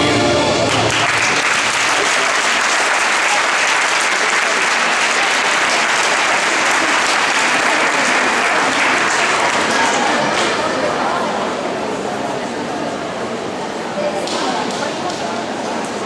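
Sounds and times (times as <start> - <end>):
audience applauding: 0.6 - 10.6.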